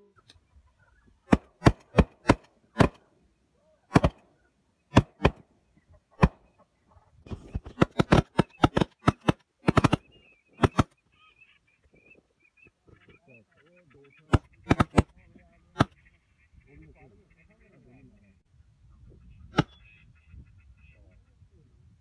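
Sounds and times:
shotguns firing: 1.3 - 3.1, 3.9 - 4.3, 4.9 - 5.4, 6.2 - 6.5, 7.5 - 10.9, 14.3 - 15.1.

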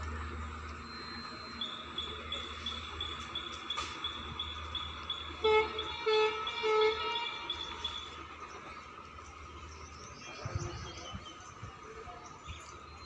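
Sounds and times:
train horn blasts: 5.2 - 8.2.

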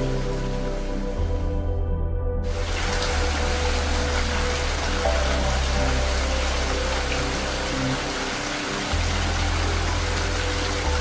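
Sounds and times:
rain hiss: 0.0 - 1.5, 2.5 - 11.0
slow calm background music: 0.0 - 11.0.

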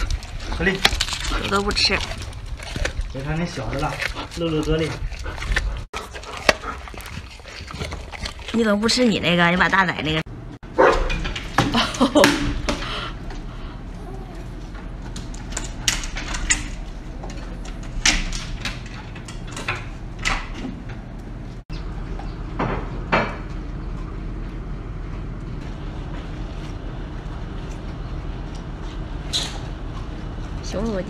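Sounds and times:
dogs crunching cucumbers: 0.0 - 22.3
steady low hum: 0.0 - 31.0.

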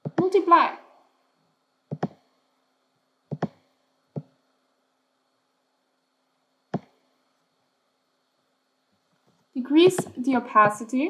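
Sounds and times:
computer mouse clicks: 1.9 - 2.2, 3.3 - 3.6, 6.7 - 7.0.

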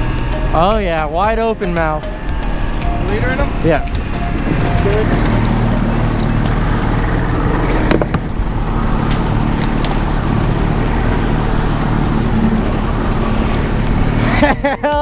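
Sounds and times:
outboard motors running: 0.0 - 15.0
rushing wake water: 0.0 - 15.0
wind noise: 0.0 - 15.0.

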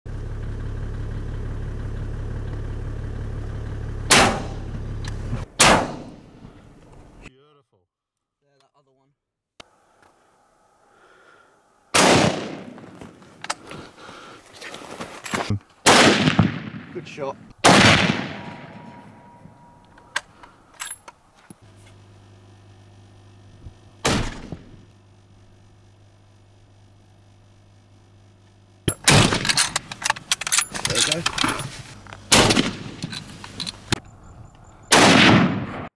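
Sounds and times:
engine idling: 0.1 - 5.5, 27.8 - 34.9
rifle shot: 4.1 - 4.7, 5.6 - 6.5, 11.9 - 13.0, 15.8 - 19.5, 24.0 - 24.8, 28.9 - 29.8, 32.3 - 33.1, 34.9 - 35.9.

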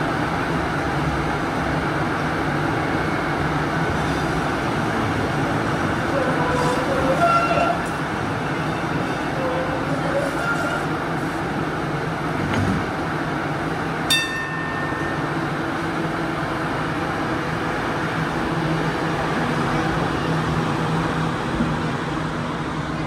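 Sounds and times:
traffic noise: 0.0 - 23.0
train electric hum: 0.0 - 23.0
short bell ding: 14.1 - 15.4.

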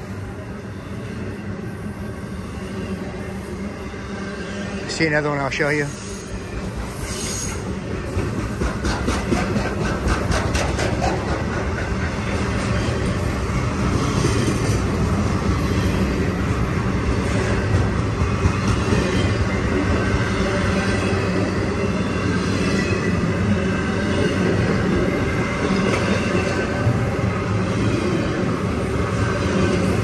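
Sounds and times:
train wheels rumbling on rail: 0.0 - 30.0
wheels clicking over rail joints: 8.1 - 13.2.

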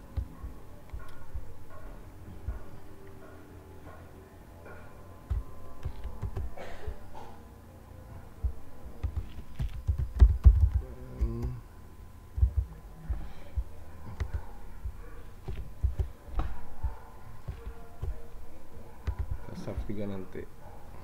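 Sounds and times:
keyboard keystrokes: 5.3 - 6.6, 9.0 - 11.6, 19.0 - 19.4.

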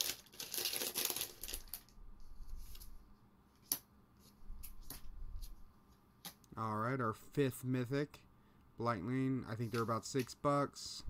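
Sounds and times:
foil wrapper crinkling: 0.0 - 1.9.

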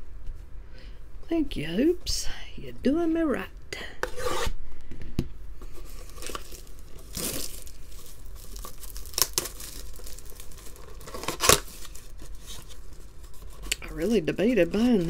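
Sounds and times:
shrink wrap crinkling and tearing: 5.8 - 15.0.

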